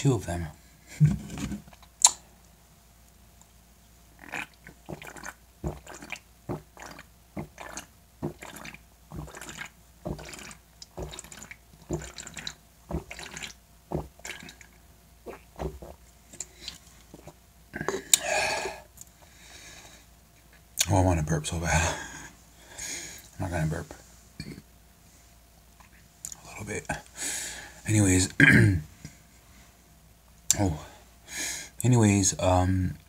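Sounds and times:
person gulping a drink: 4.2s - 18.8s.

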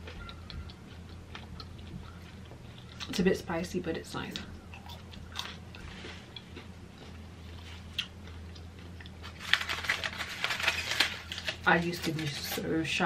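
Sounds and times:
quiet chewing: 0.0s - 3.2s, 4.3s - 9.4s
aluminium foil crinkling: 9.0s - 13.0s.

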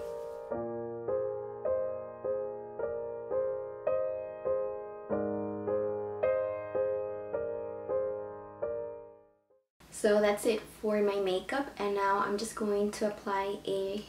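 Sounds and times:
soft piano music: 0.0s - 9.6s.

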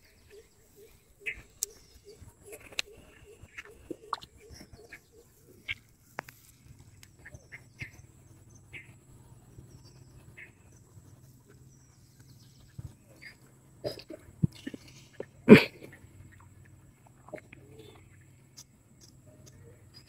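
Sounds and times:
small animals chirping and clicking: 0.2s - 9.0s, 16.3s - 20.0s.

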